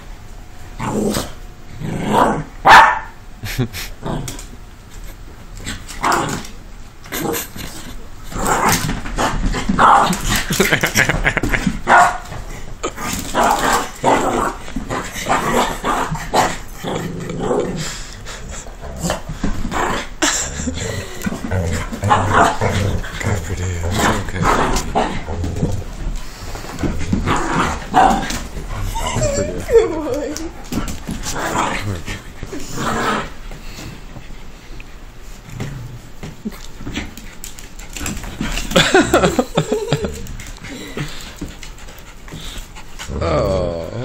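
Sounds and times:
dogs growling: 0.8 - 2.6, 3.8 - 34.4, 35.4 - 44.0
dogs barking: 2.6 - 3.2, 11.8 - 12.3.

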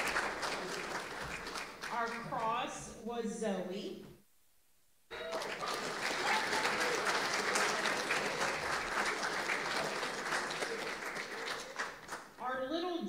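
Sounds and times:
audience applauding: 0.0 - 2.2, 5.1 - 12.4.

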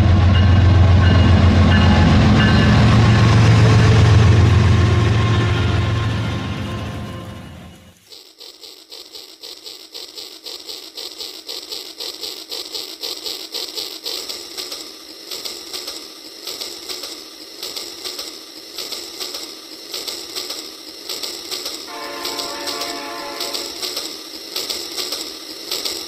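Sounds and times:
toy train clicking on plastic track: 7.9 - 26.0.

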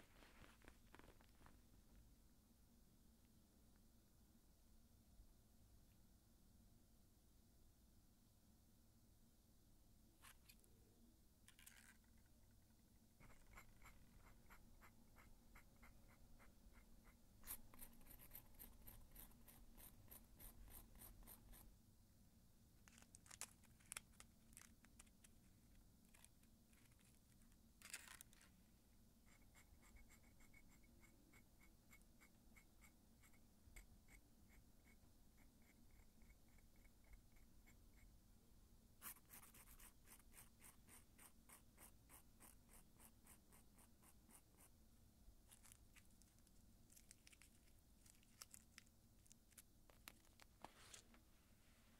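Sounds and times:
aluminium foil crinkling: 45.6 - 51.0.

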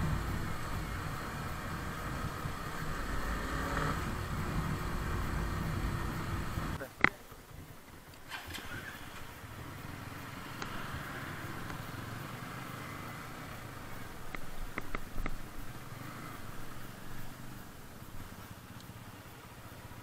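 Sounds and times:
motorcycle engine at low revs: 0.0 - 20.0
sharp clicks: 14.3 - 15.4.

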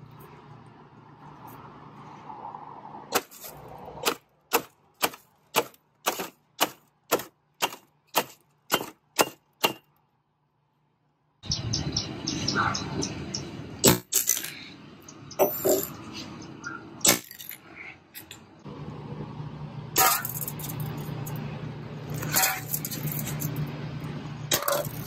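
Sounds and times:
hammer crushing foam container: 4.1 - 9.8.

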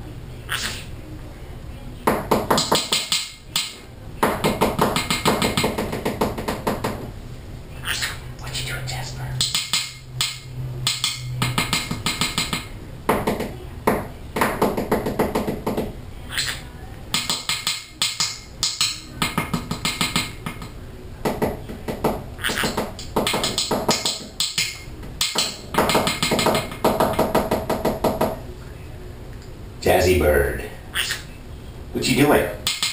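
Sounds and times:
parrot chatter: 0.4 - 1.0, 7.8 - 10.4, 16.2 - 20.1, 22.4 - 22.8, 30.9 - 31.4
parrot tapping its beak: 2.1 - 7.0, 9.4 - 28.4, 32.6 - 32.9.

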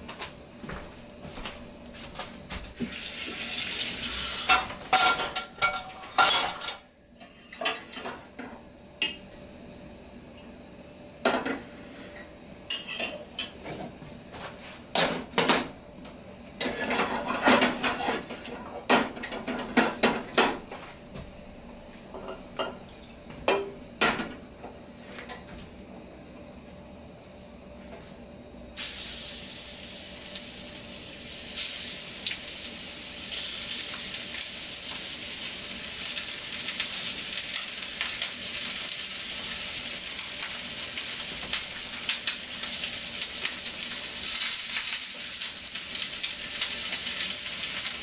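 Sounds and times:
pots and pans clanking: 4.4 - 9.2, 16.6 - 20.6.

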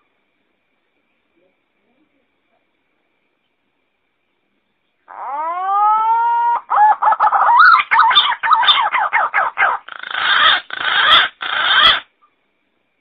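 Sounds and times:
harsh grating bird notes: 5.1 - 12.1.

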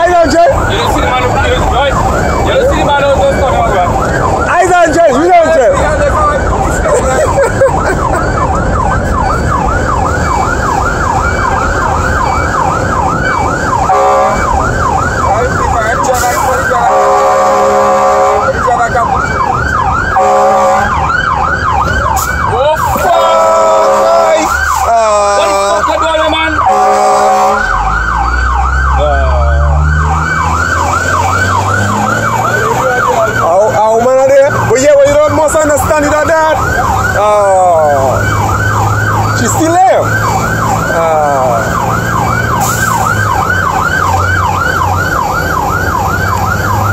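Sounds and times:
engine and road rumble: 0.0 - 46.9
siren yelping: 0.0 - 46.9
horn blast: 13.9 - 14.5, 16.2 - 18.5, 20.2 - 21.0, 23.1 - 24.5, 26.6 - 27.8.

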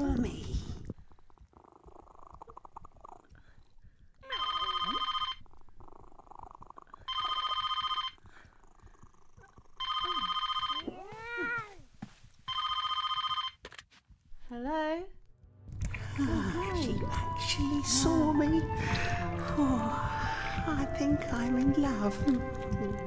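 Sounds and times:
telephone ringing: 4.2 - 5.4, 7.1 - 8.2, 9.8 - 11.0, 12.5 - 13.6
soft low rumble: 14.2 - 23.0.

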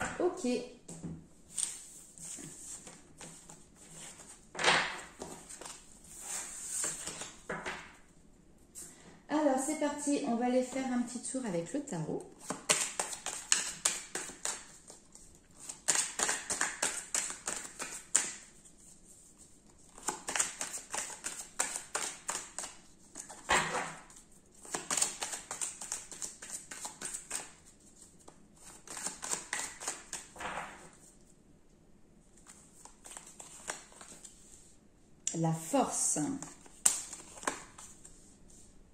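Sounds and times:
cards being shuffled: 1.5 - 7.8, 12.4 - 31.2, 32.4 - 34.7, 36.4 - 38.7.

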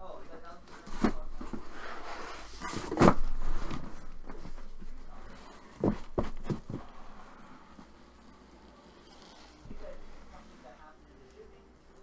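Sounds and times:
cardboard flaps scraping and rustling: 0.7 - 7.1.

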